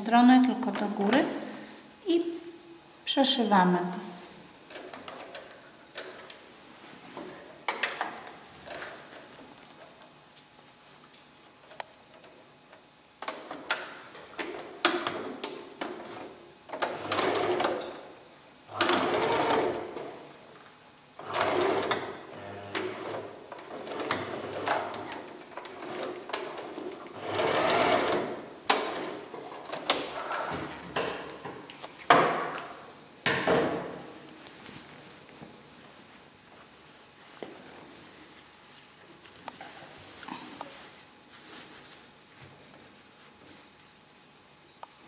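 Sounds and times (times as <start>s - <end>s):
sewing machine stitching: 16.0s - 18.0s, 18.7s - 20.1s, 21.2s - 30.5s.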